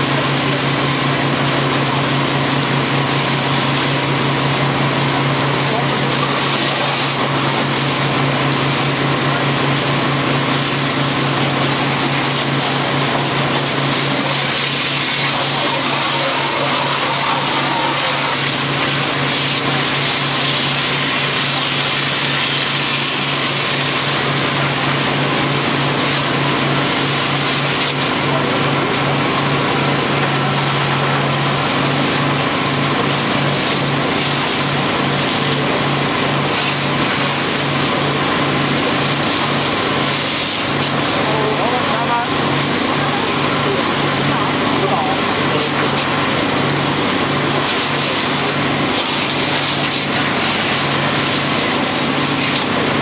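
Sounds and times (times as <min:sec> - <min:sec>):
fire hose water spraying: 0:00.0 - 0:53.0
low engine drone: 0:00.0 - 0:53.0.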